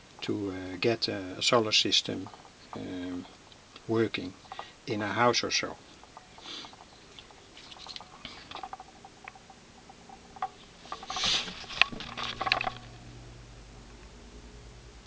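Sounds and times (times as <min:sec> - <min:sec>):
faint low hum: 0:00.0 - 0:15.0
handling rustles and clicks: 0:05.7 - 0:13.0.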